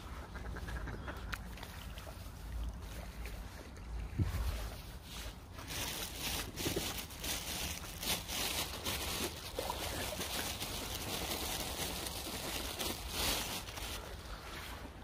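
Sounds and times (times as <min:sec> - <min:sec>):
wind rumbling on microphone: 0:02.7 - 0:09.2.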